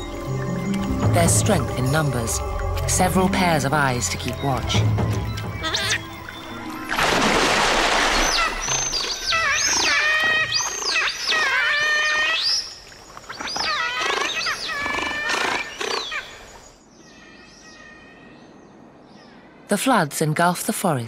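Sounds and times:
otters squealing: 0:05.4 - 0:06.2
water splash: 0:06.7 - 0:10.7.

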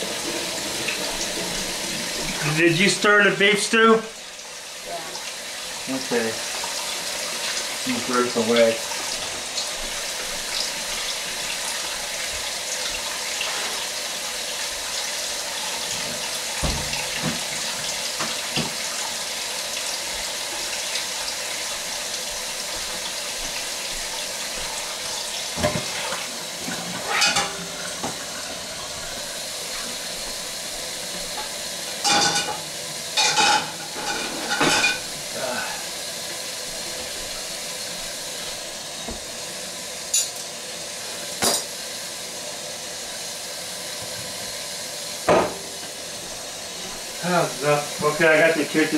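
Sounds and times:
water running from faucet: 0:00.0 - 0:48.9
knocks and clatters at sink: 0:15.9 - 0:18.8, 0:25.5 - 0:28.2.

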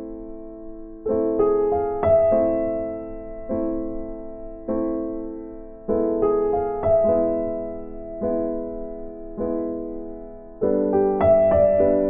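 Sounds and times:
soft piano chords: 0:00.0 - 0:12.0.

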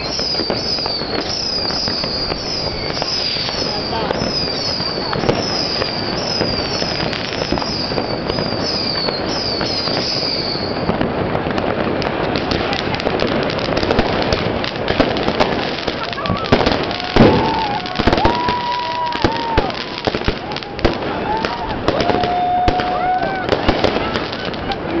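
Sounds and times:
falling whistle: 0:00.0 - 0:10.9
fireworks crackling and banging: 0:00.0 - 0:25.0.

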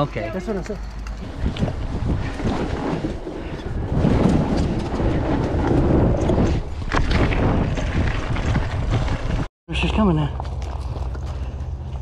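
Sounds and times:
mountain bike rolling: 0:00.1 - 0:09.5, 0:10.4 - 0:12.0
wind rumble on microphone: 0:00.9 - 0:09.5.

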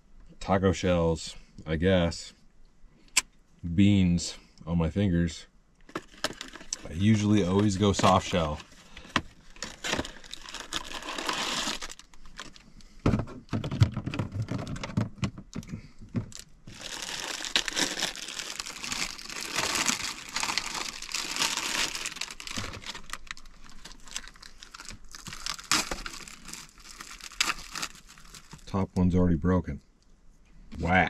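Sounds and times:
plastic bag crinkling: 0:05.9 - 0:12.7, 0:16.2 - 0:28.7.

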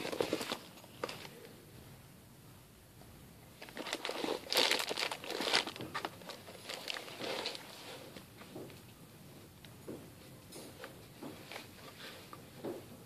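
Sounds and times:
plastic bags crinkling: 0:00.0 - 0:01.4, 0:03.6 - 0:07.8.

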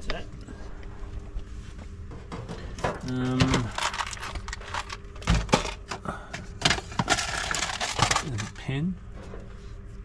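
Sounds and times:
objects rummaged in metal box: 0:02.3 - 0:08.8
plastic bag rustling: 0:03.1 - 0:05.9, 0:06.6 - 0:08.6.

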